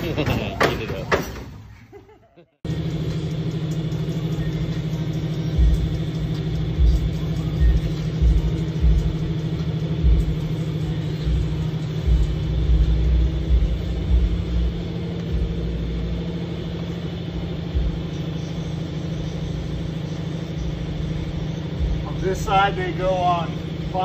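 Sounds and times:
low mechanical hum: 0.0 - 24.0
dull low thumps: 11.3 - 16.7.

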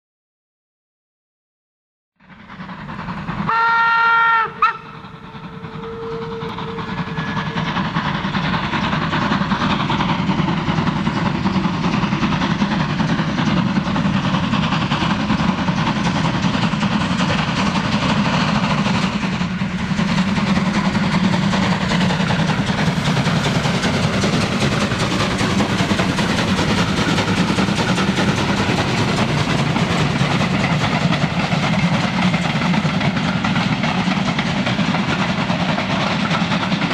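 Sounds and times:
steam locomotive exhaust chuffing: 2.2 - 36.9
steam locomotive whistle: 3.4 - 8.0.

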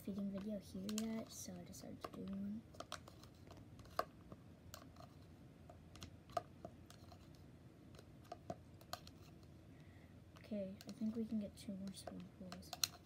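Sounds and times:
plastic spoon tapping plastic bowl: 0.1 - 1.4, 2.0 - 5.0, 10.4 - 13.0.

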